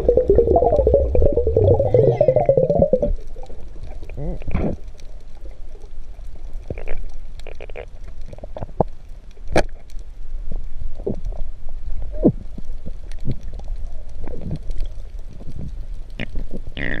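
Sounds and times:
bubbling gurgles: 0:00.0 - 0:04.9
underwater low rumble: 0:00.0 - 0:16.8.

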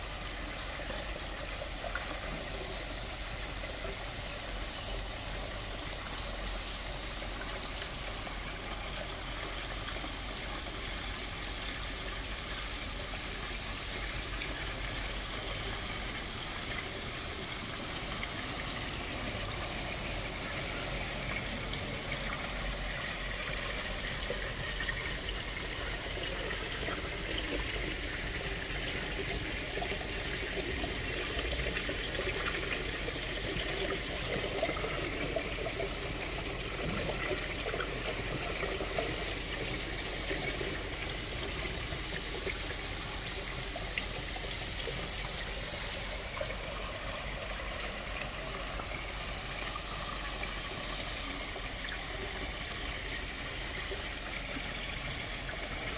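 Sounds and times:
waterfall splashing into pond: 0:00.0 - 0:55.9.

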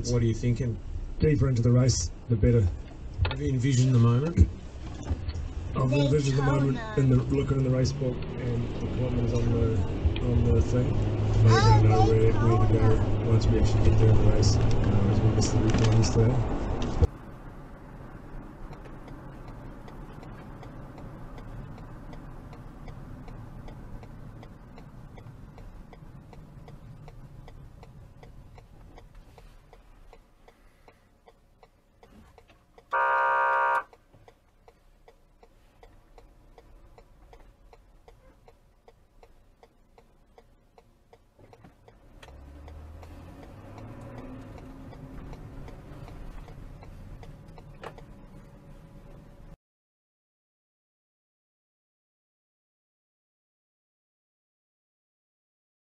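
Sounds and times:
car engine and road hum: 0:00.0 - 0:49.6
car horn blast: 0:32.9 - 0:34.0.

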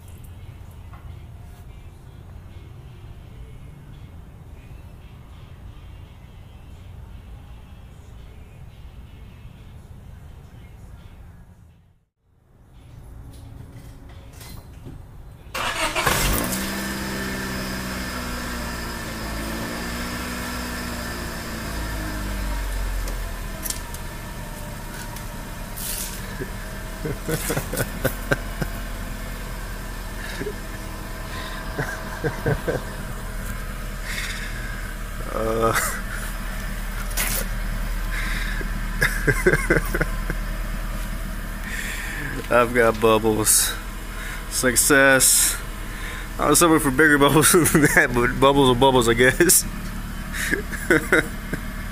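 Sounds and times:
car engine idling: 0:15.5 - 0:51.9
car engine starter cranking: 0:15.5 - 0:51.9
exhaust sputters: 0:15.6 - 0:51.9.

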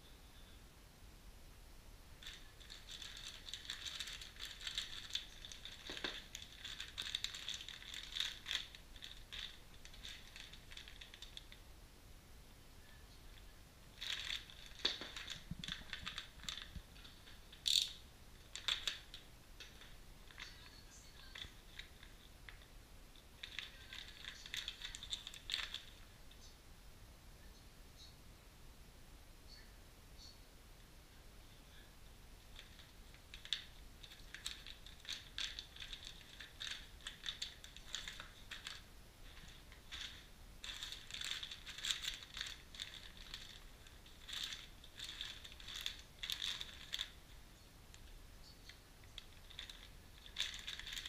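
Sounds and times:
plastic bags crinkling: 0:02.2 - 0:11.6, 0:13.9 - 0:22.7, 0:23.4 - 0:26.1, 0:32.5 - 0:51.0
metal parts clicking and knocking: 0:14.0 - 0:20.6.

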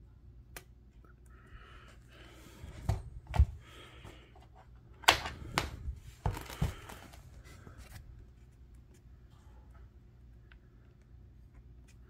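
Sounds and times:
cable rustling: 0:04.4 - 0:09.1.

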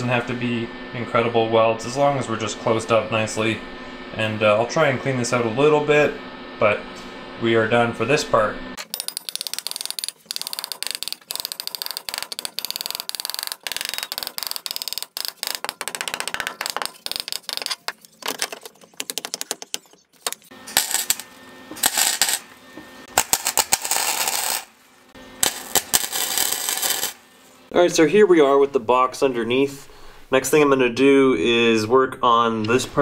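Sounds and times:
metallic tapping and clinking: 0:08.8 - 0:18.0
arc welding crackling: 0:09.4 - 0:19.4, 0:20.1 - 0:27.7.

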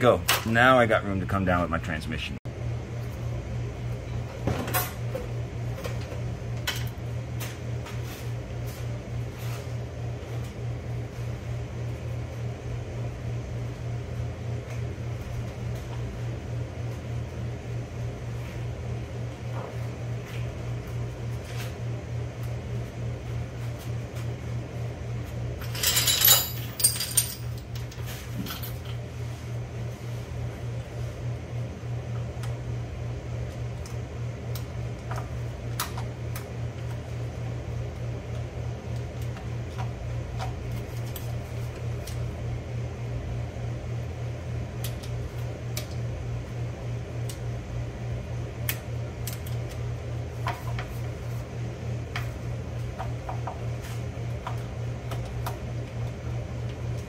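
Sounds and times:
fan hum with flutter: 0:00.0 - 0:57.0
metallic clatter of tools: 0:25.6 - 0:27.6.

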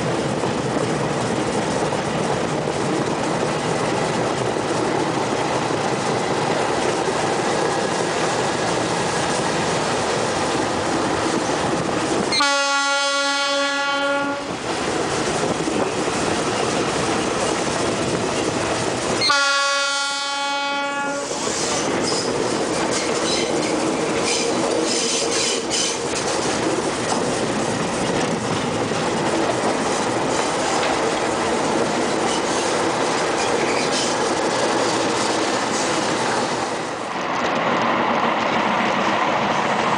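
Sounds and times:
locomotive horn blast: 0:12.3 - 0:14.5, 0:19.2 - 0:21.3
train wheels clattering over rail joints: 0:14.5 - 0:19.4, 0:21.3 - 0:39.9.

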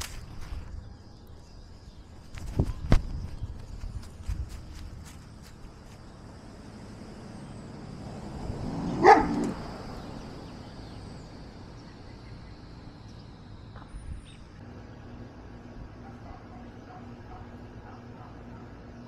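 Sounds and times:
dog barking: 0:09.0 - 0:09.5, 0:16.0 - 0:18.8.

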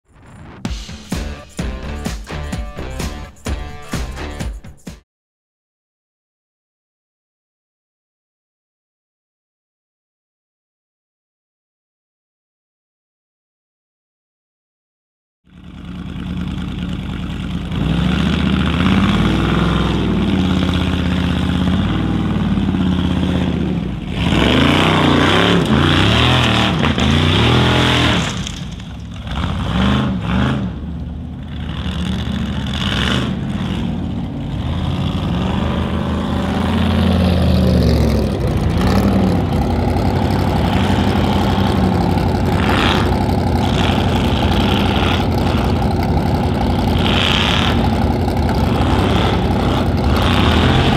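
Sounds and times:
racing car engine revving: 0:15.8 - 0:50.9.

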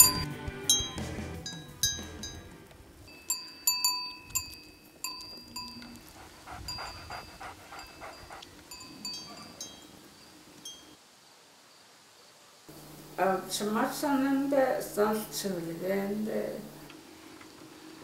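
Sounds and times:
livestock bells clinking: 0:00.0 - 0:02.5, 0:03.1 - 0:06.1, 0:06.7 - 0:11.0.

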